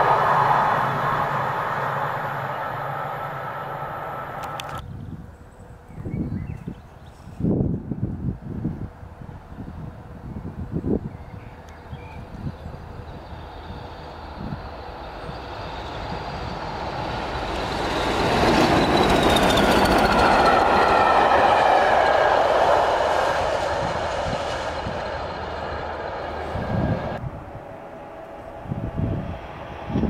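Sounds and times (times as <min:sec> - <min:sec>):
diesel locomotive engines passing: 0:00.0 - 0:30.0
wheels clattering on rail: 0:13.1 - 0:27.2.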